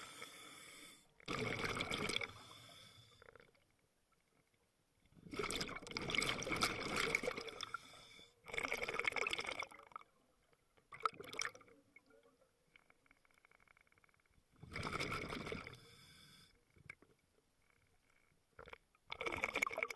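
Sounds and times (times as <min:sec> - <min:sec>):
exhaled bubbles rushing from regulator: 0:01.3 - 0:02.5, 0:05.2 - 0:07.8, 0:08.5 - 0:10.0, 0:14.6 - 0:15.8, 0:18.6 - 0:19.9.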